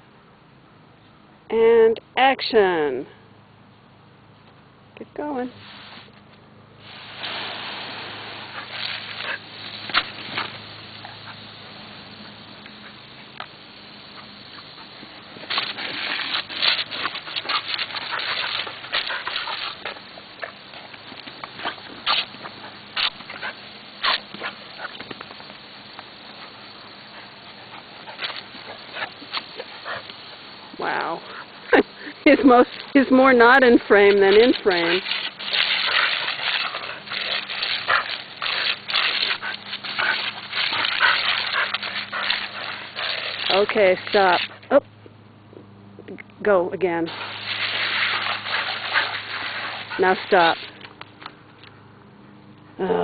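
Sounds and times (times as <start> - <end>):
garden hose spray splashing: 5.2 - 44.8, 46.5 - 51.2.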